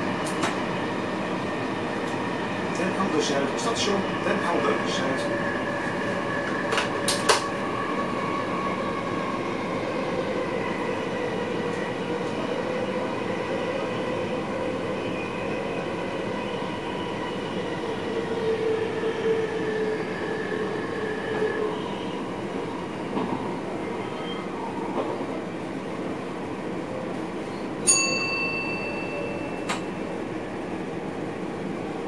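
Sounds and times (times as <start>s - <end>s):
train wheels rumbling on rail: 0.0s - 27.9s.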